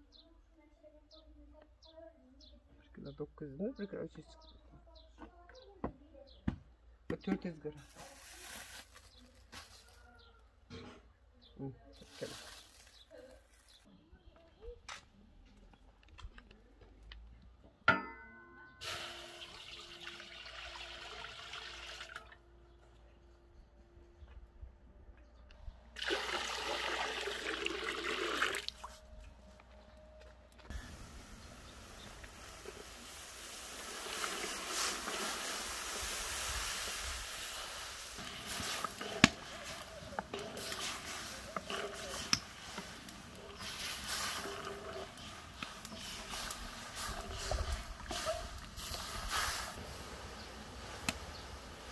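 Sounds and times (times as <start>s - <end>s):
water pouring into pot: 18.8s - 22.3s, 26.0s - 28.8s, 32.0s - 49.8s.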